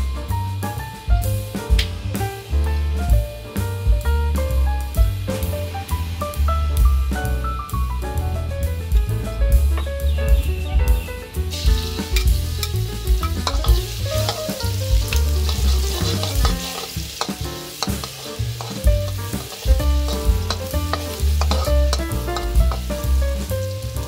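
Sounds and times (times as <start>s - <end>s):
garlic sizzling in hot oil: 0.1s - 24.0s
spatula scraping a wok: 12.1s - 22.9s.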